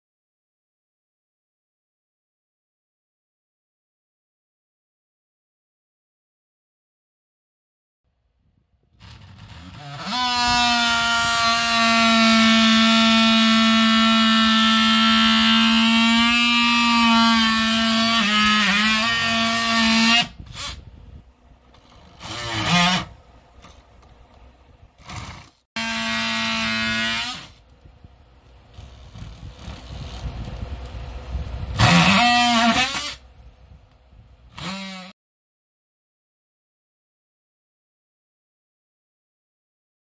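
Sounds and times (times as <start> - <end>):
oscillating multi-tool buzzing: 9.0 - 20.9, 21.8 - 23.2, 25.0 - 27.7, 31.8 - 33.2, 34.5 - 35.2.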